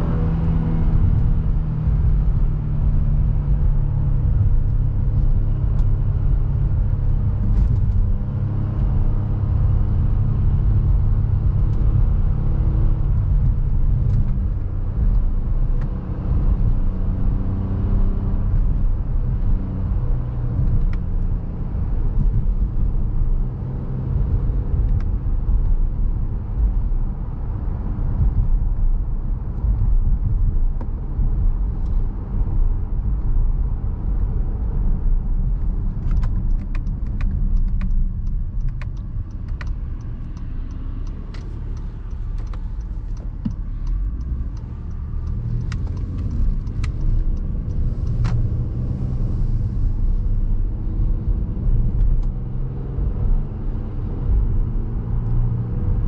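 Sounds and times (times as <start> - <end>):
car engine hum: 0.0 - 56.0
tyre and road rumble: 0.0 - 56.0.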